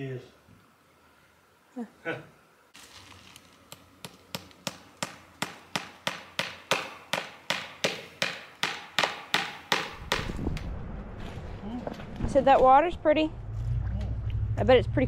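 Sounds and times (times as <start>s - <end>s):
hammer striking into wood: 3.7s - 10.4s
low rumble: 10.0s - 15.0s.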